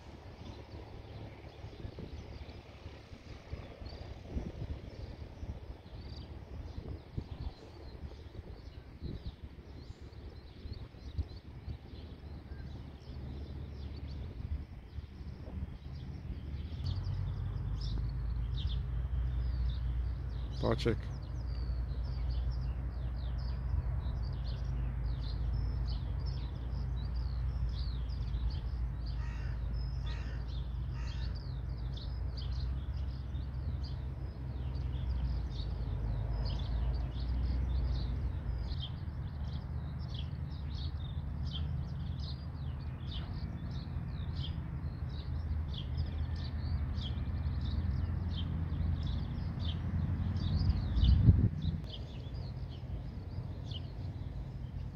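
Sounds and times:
birds chirping: 0:00.0 - 0:54.9
distant light aircraft drone: 0:00.0 - 0:54.9
bird caws: 0:29.1 - 0:31.4.

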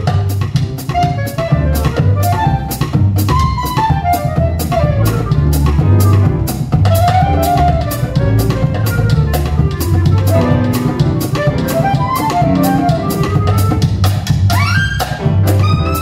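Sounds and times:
clarinet melody: 0:00.0 - 0:16.0
drum kit beat: 0:00.0 - 0:16.0
piano: 0:00.0 - 0:16.0
plucked upright bass: 0:00.0 - 0:16.0.

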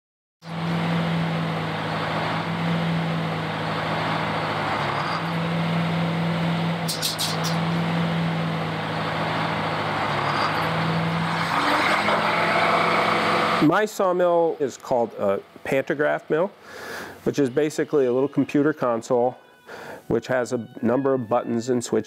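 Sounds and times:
circular saw spinning: 0:00.5 - 0:13.7.

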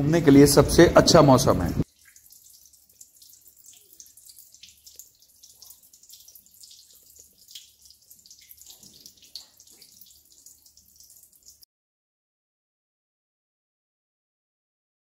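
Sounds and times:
water dripping onto stone: 0:01.8 - 0:11.6.

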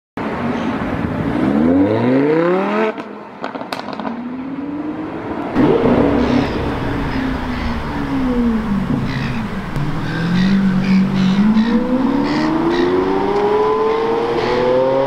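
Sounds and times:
car engine revving: 0:05.5 - 0:15.0
exhaust pops and crackles: 0:05.6 - 0:11.8.

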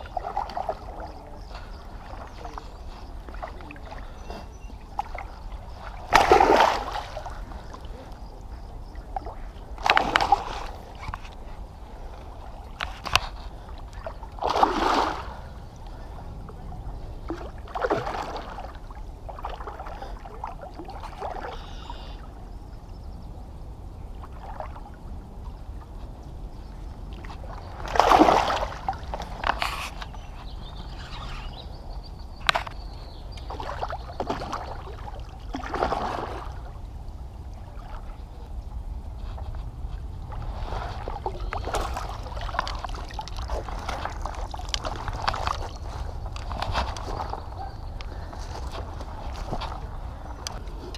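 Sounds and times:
fish splashing in water: 0:04.9 - 0:08.0, 0:09.1 - 0:11.0, 0:14.0 - 0:15.5, 0:27.4 - 0:29.9.

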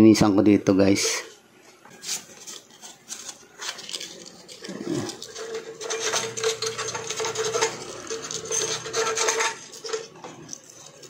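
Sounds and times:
metal tool scraping contacts: 0:02.4 - 0:11.0.

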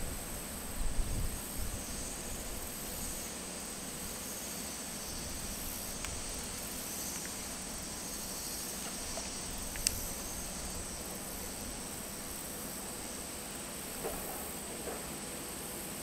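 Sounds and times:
insects droning: 0:00.0 - 0:16.0
faint clicks: 0:08.8 - 0:10.0.

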